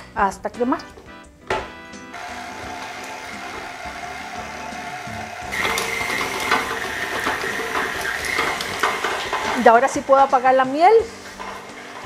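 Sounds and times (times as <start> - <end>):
stand mixer motor hum: 2.2 - 9.6.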